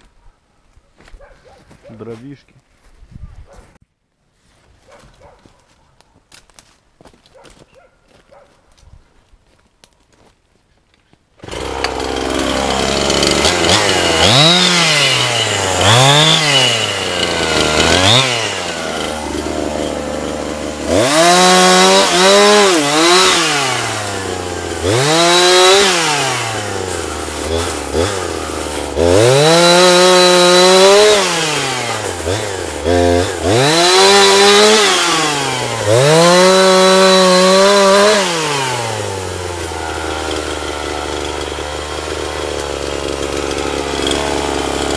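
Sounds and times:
chainsaw revving: 11.4s - 44.9s.

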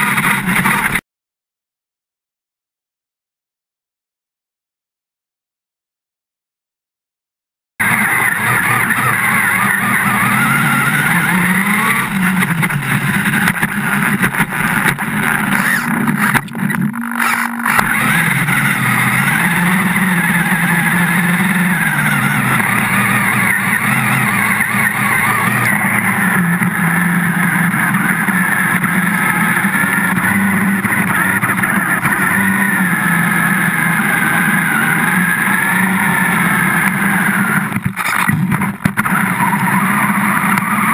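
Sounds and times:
toy car motor running: 8.0s - 38.4s.

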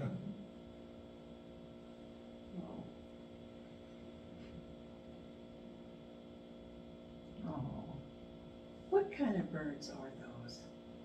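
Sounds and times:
steady electrical hum: 0.0s - 11.0s.

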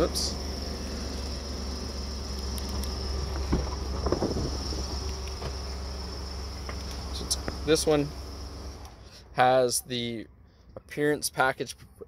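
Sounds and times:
high-pitched whine: 0.0s - 9.0s
steady low hum: 0.0s - 9.4s.

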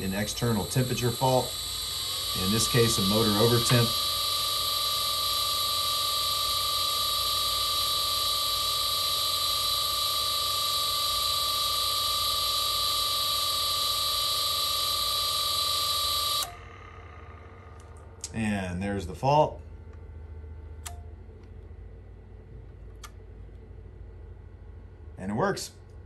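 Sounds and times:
high electrical whine over hiss: 0.0s - 19.6s.

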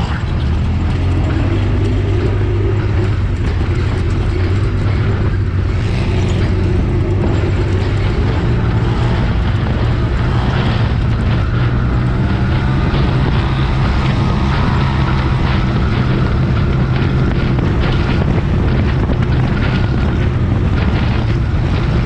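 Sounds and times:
tyre noise: 0.0s - 22.0s
vehicle engine running: 0.0s - 22.0s
wind noise: 0.0s - 22.0s.

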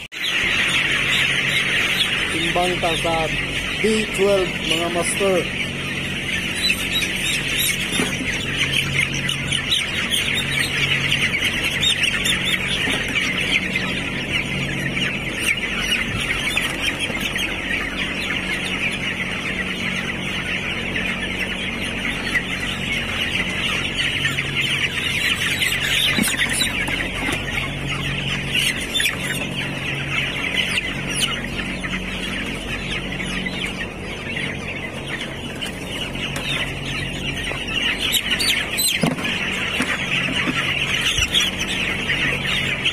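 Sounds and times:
chicks peeping: 0.0s - 42.9s.

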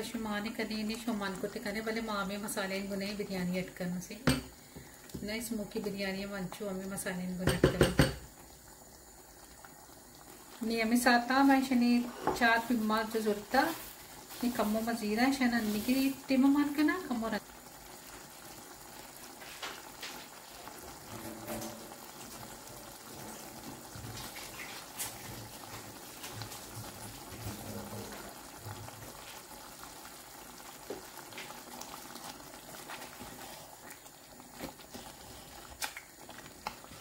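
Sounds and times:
curry bubbling in a pot: 0.0s - 37.0s
wooden spoon stirring in a pot: 10.3s - 16.9s, 19.2s - 37.0s.

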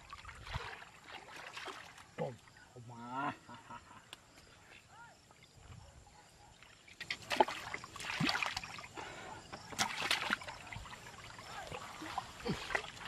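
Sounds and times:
muddy water splashing: 0.0s - 2.8s, 6.6s - 13.0s.

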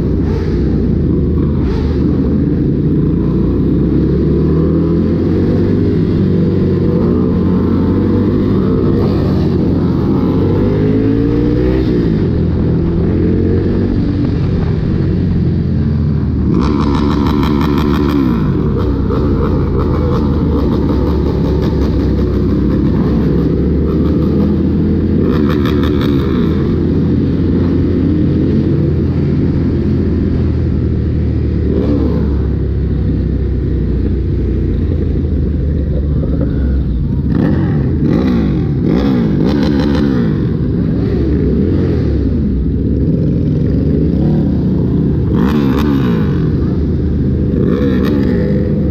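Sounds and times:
motorbike engines revving: 0.0s - 48.9s.

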